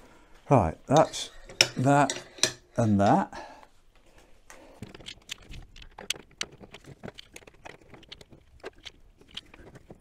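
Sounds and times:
metal frame parts clinking: 0:00.9 - 0:03.3.

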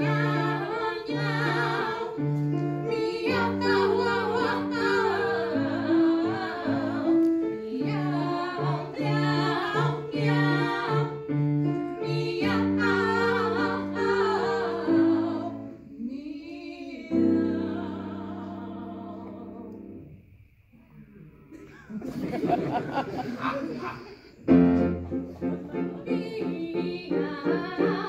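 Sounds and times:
grand piano: 0:00.0 - 0:20.4, 0:21.7 - 0:28.0
women singing operatic meows: 0:02.9 - 0:11.1.

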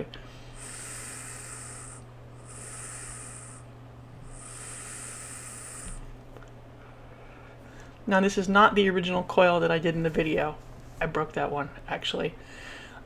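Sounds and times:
breathy hisses of air vaping: 0:00.2 - 0:06.2.

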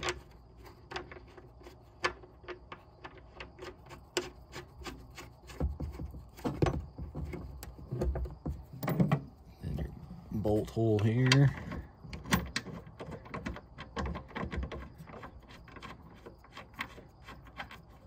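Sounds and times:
dull thumps: 0:05.4 - 0:09.4
light clicks and knocks: 0:10.8 - 0:18.0.

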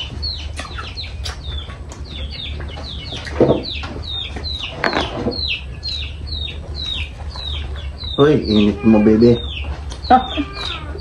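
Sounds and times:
chicks peeping: 0:00.0 - 0:11.0
louder lower bird calls: 0:00.0 - 0:11.0.

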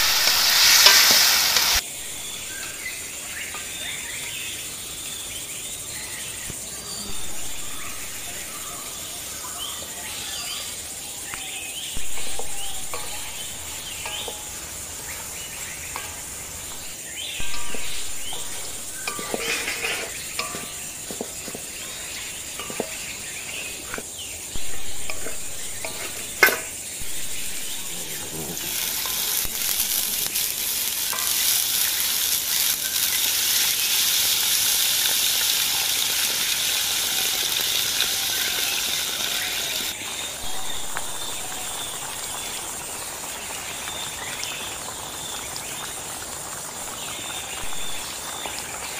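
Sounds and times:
metal spatula scraping a pan: 0:00.0 - 0:01.8, 0:12.2 - 0:32.8
water poured into a hot pan: 0:00.0 - 0:04.8, 0:11.8 - 0:48.9
food sizzling in a wok: 0:00.0 - 0:48.9.

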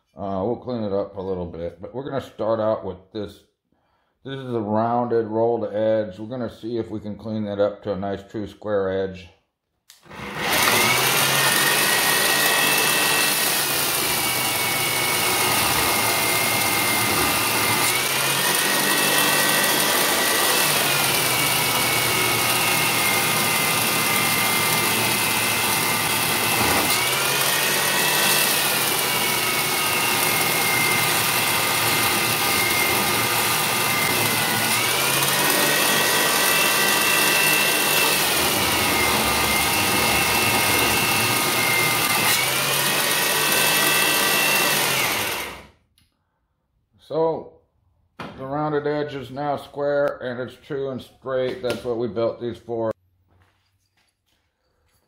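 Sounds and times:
belt grinder motor whine: 0:10.0 - 0:45.8
abrasive belt grinding steel: 0:10.1 - 0:45.6.

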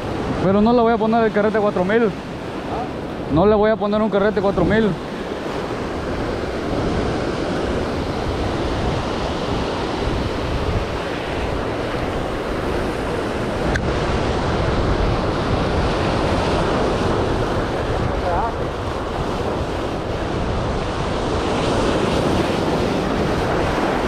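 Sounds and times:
ocean surf breaking over rocks: 0:00.0 - 0:24.0
wind buffeting microphone: 0:00.0 - 0:24.0
small click: 0:13.7 - 0:13.9.

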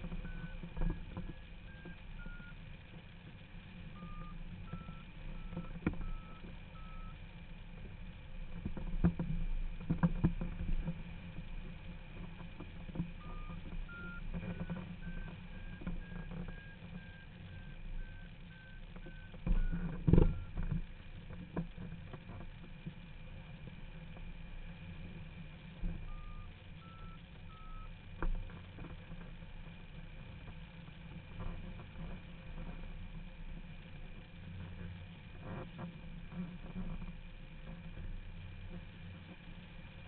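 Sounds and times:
variometer beeping: 0:00.0 - 0:07.5, 0:13.2 - 0:20.6, 0:26.0 - 0:28.0.

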